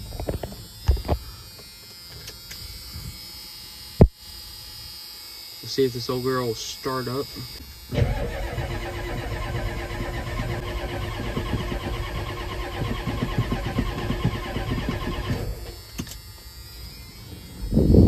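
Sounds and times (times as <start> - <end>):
starter whine: 7.4 - 16.5
starter motor cranking diesel engine: 7.9 - 15.9.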